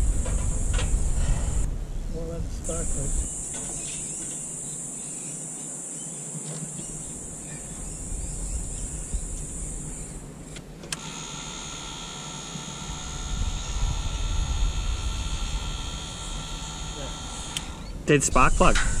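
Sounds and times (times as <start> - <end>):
multi-tone engine whine: 6.9 - 18.7
igniter sparking hiss: 10.9 - 19.0.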